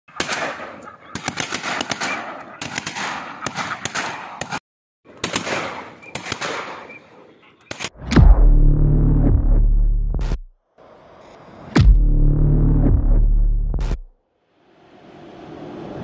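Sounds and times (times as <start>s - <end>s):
shotguns firing: 0.1s - 7.0s
deep electronic music tone: 8.0s - 10.5s, 11.8s - 14.1s.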